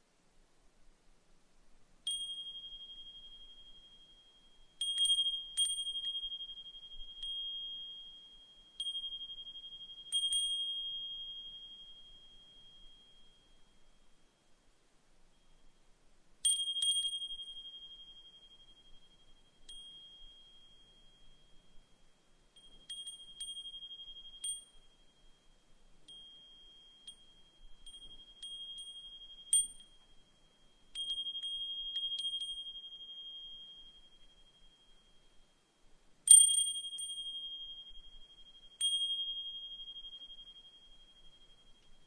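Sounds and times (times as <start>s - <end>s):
wind chime ringing: 22.6s - 25.4s, 26.1s - 35.2s.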